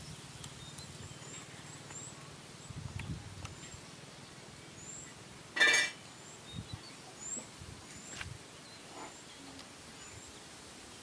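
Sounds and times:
faint bird chirps: 0.0s - 5.3s, 6.0s - 11.0s.

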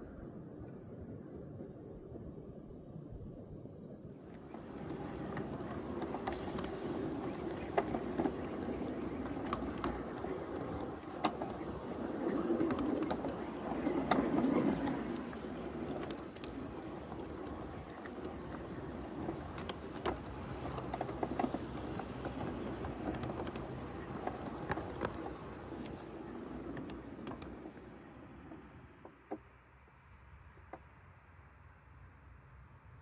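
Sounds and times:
train wheels rumbling on rail: 4.3s - 29.6s
sharp clicks and knocks: 4.4s - 29.7s.

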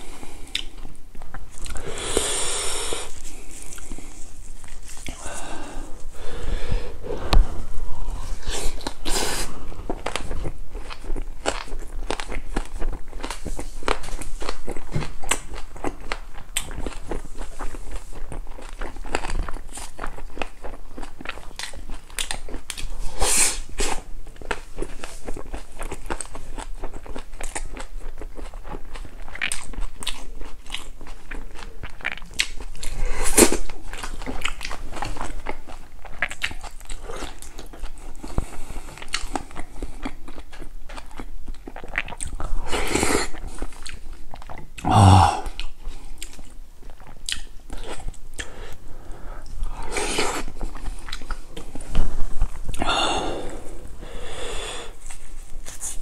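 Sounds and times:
chewing and crunching food: 0.0s - 2.0s, 3.0s - 56.0s
wet mouth clicks: 0.5s - 0.9s.

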